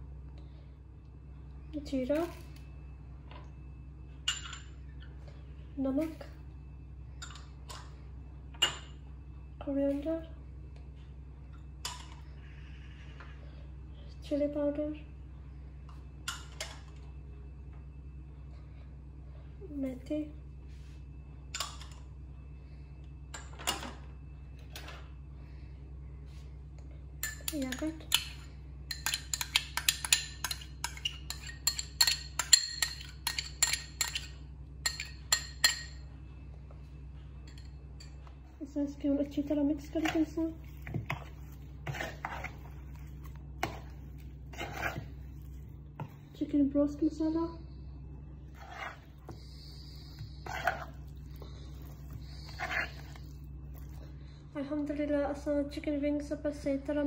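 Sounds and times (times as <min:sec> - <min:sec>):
steady low hum: 0:00.0 - 0:57.0
metal spoon clinking on glass bowl: 0:28.9 - 0:36.0.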